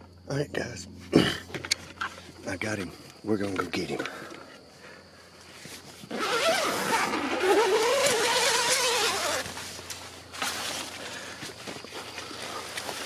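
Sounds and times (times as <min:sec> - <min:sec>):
tent zipper rasping: 0:06.0 - 0:09.8.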